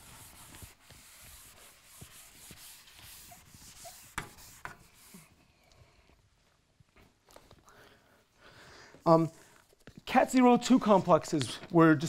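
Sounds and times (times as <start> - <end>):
eraser rubbing on blackboard: 0.0 - 5.4.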